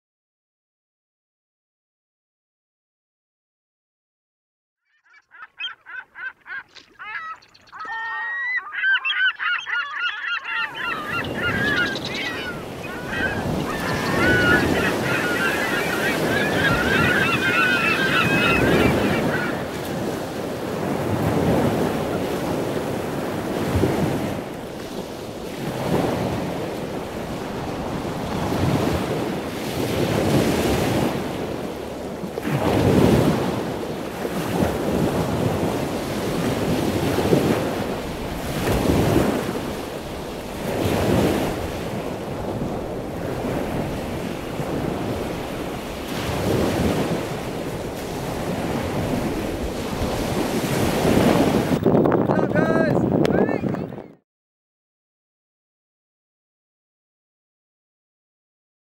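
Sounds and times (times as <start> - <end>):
wavering high calls: 4.9 - 19.7
ocean surf breaking: 5.9 - 53.9
wind buffeting microphone: 10.7 - 31.7, 32.6 - 54.2.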